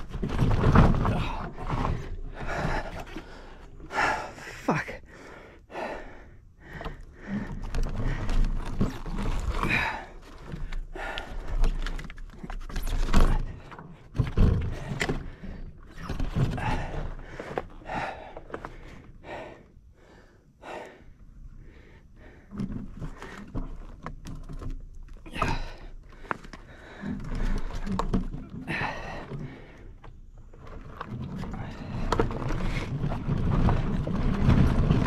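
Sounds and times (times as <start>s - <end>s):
thumps over bumps: 0.0s - 4.2s, 6.6s - 19.5s, 30.8s - 35.0s
bike rattling and knocking: 0.0s - 4.3s, 30.9s - 35.0s.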